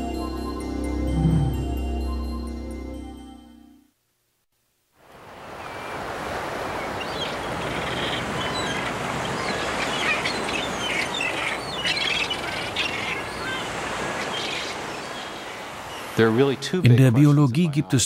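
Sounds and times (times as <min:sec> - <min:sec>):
surf washing: 0:05.1 - 0:17.3
seabirds calling: 0:05.5 - 0:17.8.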